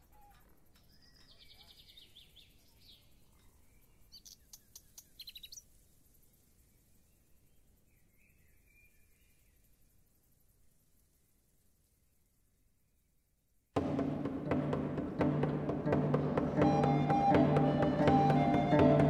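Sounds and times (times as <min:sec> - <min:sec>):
faint birdsong: 0:00.0 - 0:13.2.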